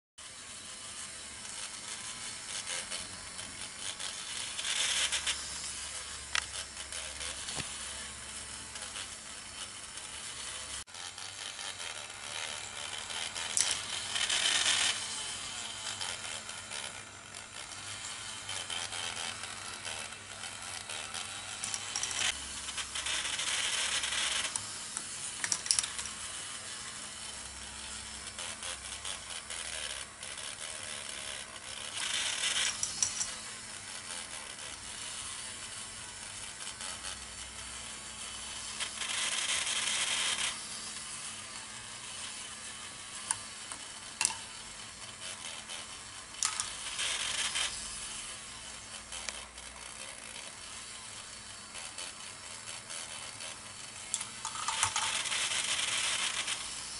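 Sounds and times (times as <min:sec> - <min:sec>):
plastic gears clicking and rattling: 0:00.4 - 0:08.1, 0:08.7 - 0:22.4, 0:23.0 - 0:27.4, 0:28.3 - 0:33.4, 0:41.4 - 0:47.7, 0:52.8 - 0:56.7.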